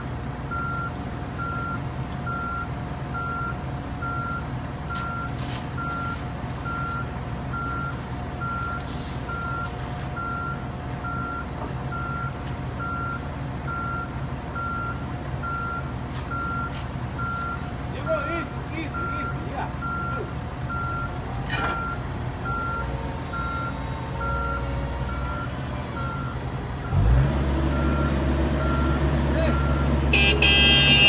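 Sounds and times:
diesel engines running: 0.0 - 31.0
backup alarm beeping: 27.7 - 31.0.

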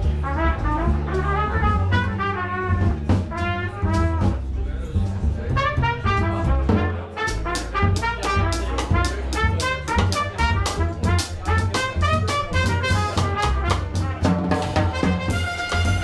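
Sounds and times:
upright bass: 0.0 - 16.0
trumpet melody: 0.2 - 4.4, 5.6 - 16.0
drum kit keeping time: 5.6 - 16.0.

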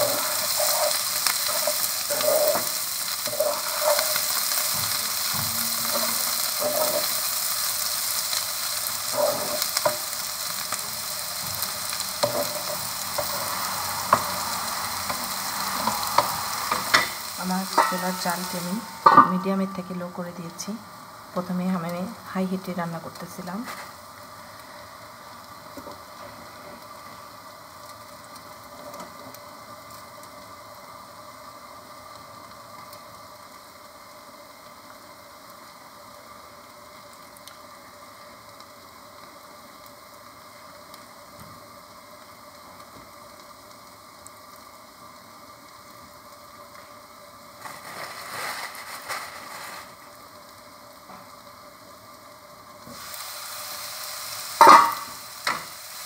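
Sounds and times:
stir-fry sizzling under a lid: 0.0 - 56.0.

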